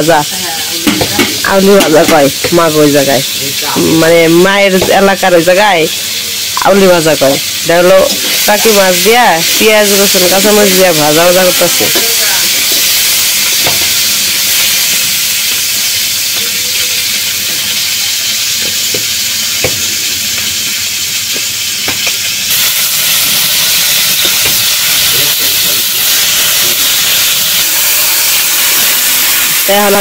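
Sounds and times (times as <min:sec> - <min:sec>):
fish sizzling in a wok: 0:00.0 - 0:30.0.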